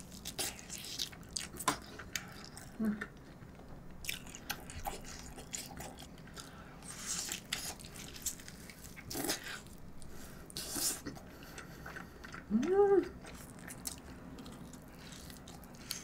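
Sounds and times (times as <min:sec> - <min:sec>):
gnawing and chewing meat: 0:00.0 - 0:16.0.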